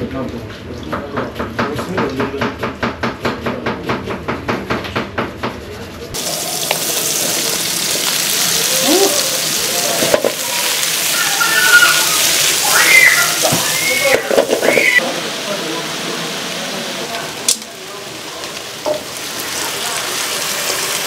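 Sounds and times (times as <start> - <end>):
vegetables sizzling in frying pan: 6.2 - 21.0.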